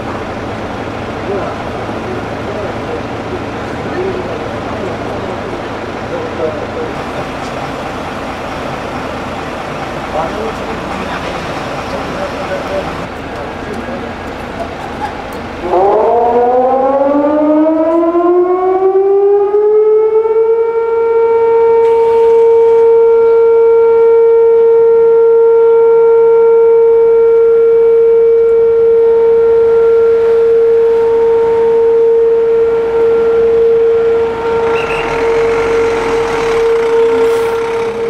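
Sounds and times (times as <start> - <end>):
air-raid siren: 15.6 - 38.0.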